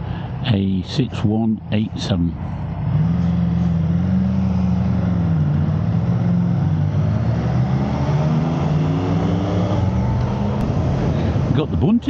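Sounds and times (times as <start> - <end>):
wind rushing over microphone: 2.6 - 11.9.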